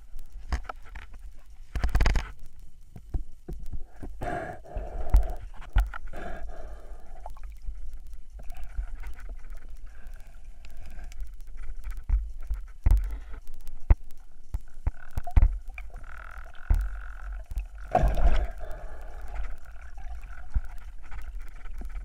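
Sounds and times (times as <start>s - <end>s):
underwater clicks: 0.1s - 22.0s
steady low underwater rumble: 2.4s - 22.0s
water and bubbles rushing: 14.8s - 22.0s.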